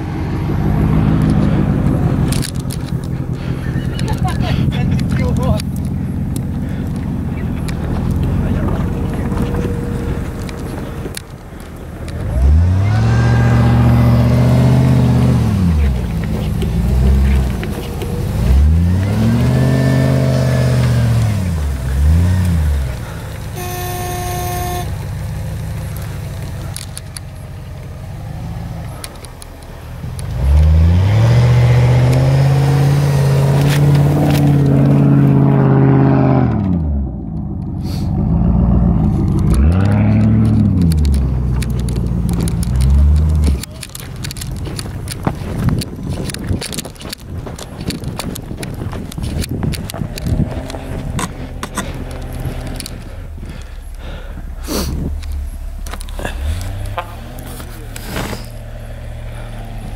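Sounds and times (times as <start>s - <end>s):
off-road engines revving: 0.0s - 59.9s
car horn toot: 23.5s - 25.1s, 56.9s - 57.4s.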